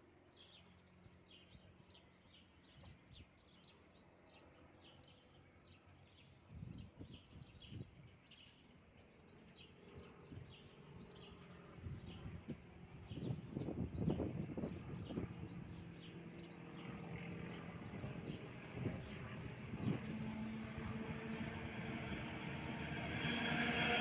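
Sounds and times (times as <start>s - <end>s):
faint locomotive hum: 0.1s - 24.0s
small birds chirping: 6.0s - 23.1s
low rumbles: 17.4s - 24.0s.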